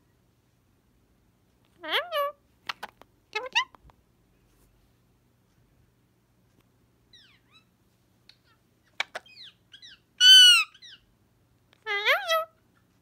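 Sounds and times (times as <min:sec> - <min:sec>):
parakeet loud squawk: 0:01.8 - 0:02.8, 0:09.0 - 0:11.0, 0:11.9 - 0:12.5
parakeet chirps and whistles: 0:07.1 - 0:07.7, 0:08.9 - 0:11.1.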